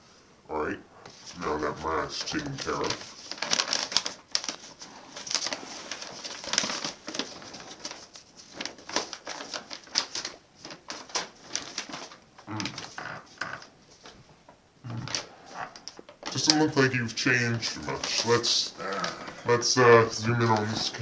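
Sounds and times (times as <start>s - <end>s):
paper rustling and crinkling: 1.1s - 14.2s, 14.9s - 21.0s.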